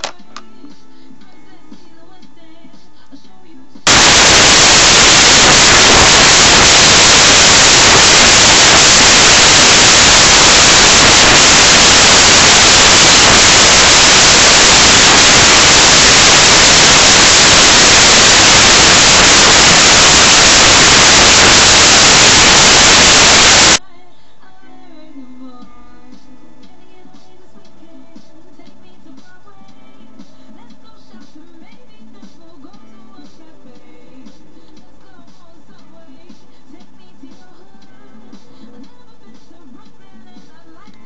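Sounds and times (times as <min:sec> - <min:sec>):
loud static hiss: 0:03.8 - 0:23.8.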